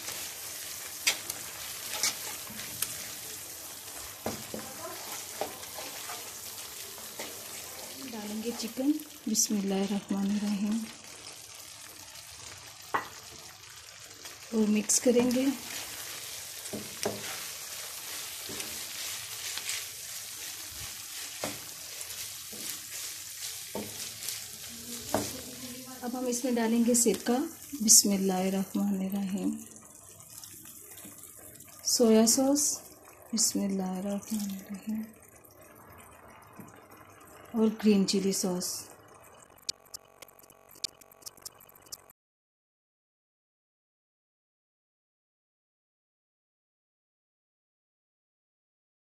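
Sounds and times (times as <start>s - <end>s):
spatula clicking and scraping pan: 0.0s - 8.6s, 15.2s - 25.7s
sauce sizzling in frying pan: 0.0s - 42.1s.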